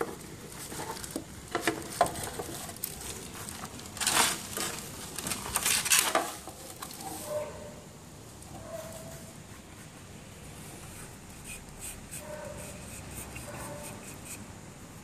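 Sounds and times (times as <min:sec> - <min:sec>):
plastic handling clicks and knocks: 0:00.0 - 0:03.0.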